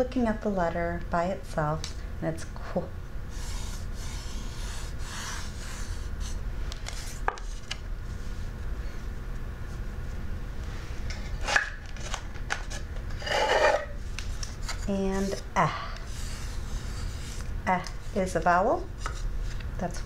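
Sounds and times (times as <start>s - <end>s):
fingers rubbing sandpaper: 3.3s - 7.1s.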